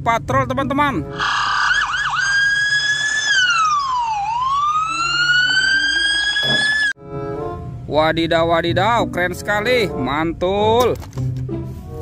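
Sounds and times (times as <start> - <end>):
police siren wailing: 1.1 - 7.0.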